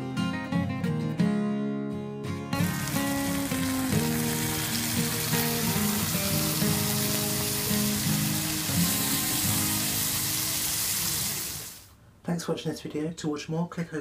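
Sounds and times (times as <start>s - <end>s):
plucked guitar music: 0.0s - 11.0s
meat sizzling on hot plate: 2.6s - 11.9s.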